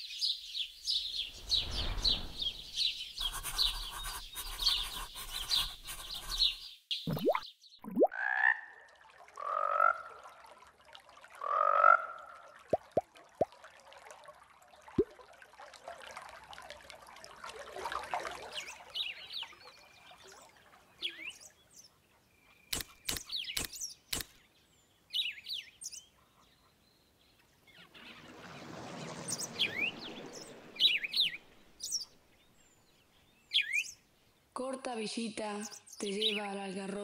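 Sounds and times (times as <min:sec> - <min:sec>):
small birds chirping: 0:00.0 - 0:08.1, 0:18.5 - 0:28.3, 0:29.3 - 0:34.5, 0:35.2 - 0:37.0
sharp clicks: 0:22.7 - 0:24.4.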